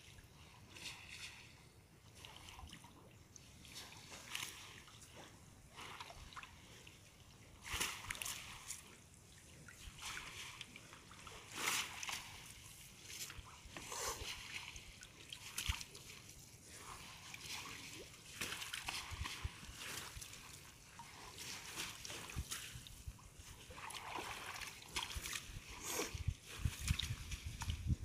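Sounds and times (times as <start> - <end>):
shallow water splashing: 0.0 - 28.0.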